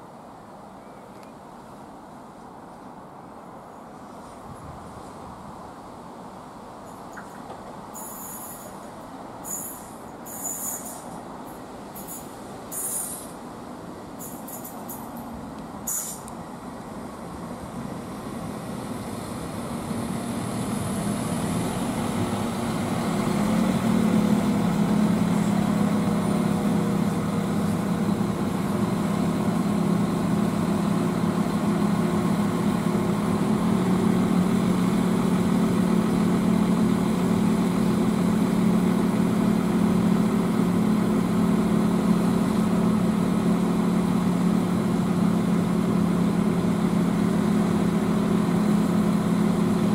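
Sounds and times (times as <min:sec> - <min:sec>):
diesel train pulling up: 0:02.8 - 0:49.9
diesel engines idling: 0:11.1 - 0:49.9.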